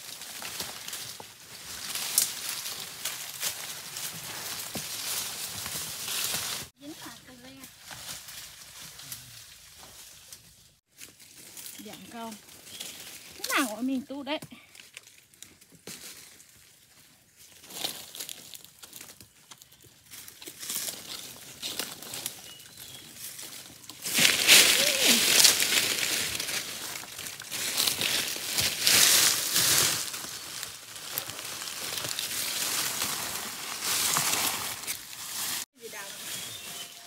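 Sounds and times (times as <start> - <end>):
footsteps in dry leaves: 0.0 - 14.0, 14.6 - 37.0
ferns swishing: 23.2 - 37.0.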